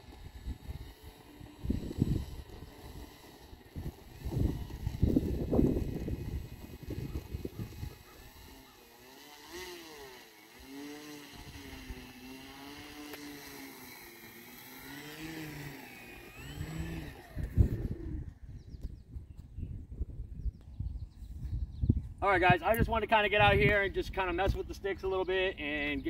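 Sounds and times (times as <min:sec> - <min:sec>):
electric model plane motor whining: 0:00.0 - 0:19.0.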